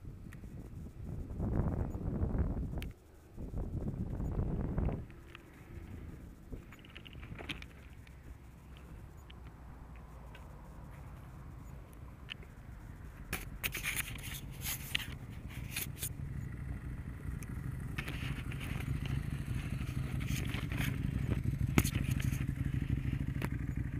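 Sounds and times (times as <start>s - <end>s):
motorcycle engines approaching: 0.4s - 23.9s
fabric rubbing against camera: 13.3s - 16.1s.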